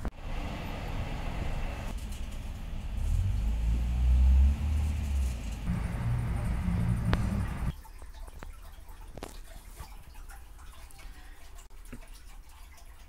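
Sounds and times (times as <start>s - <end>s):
low rumble: 3.7s - 7.7s.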